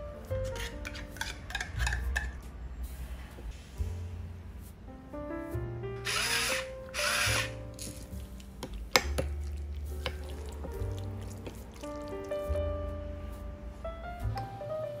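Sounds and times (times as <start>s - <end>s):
light background music: 0.0s - 15.0s
spoon scraping in bowl: 0.4s - 2.4s.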